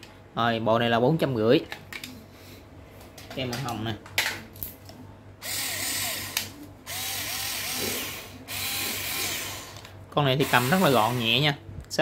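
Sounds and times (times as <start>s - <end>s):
cordless screwdriver motor whirring: 5.4s - 11.4s.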